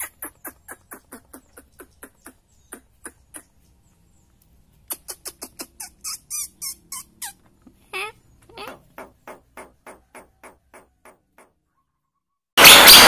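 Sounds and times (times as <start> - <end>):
bird calling sharp clicks: 0.0 - 3.6, 4.4 - 6.0.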